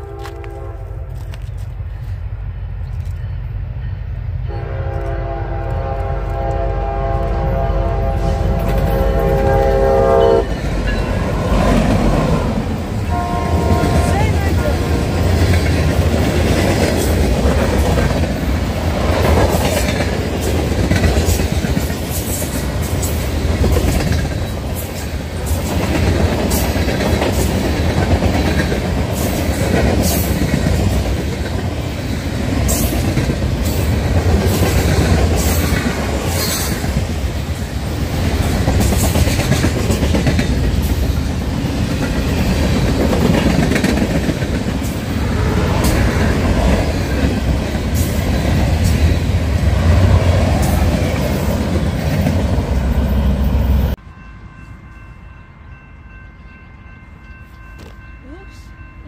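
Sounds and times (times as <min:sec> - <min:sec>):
train wheels rumbling on rail: 0:00.0 - 0:55.0
clicks and clatter of train cars: 0:04.6 - 0:09.8, 0:13.8 - 0:45.1.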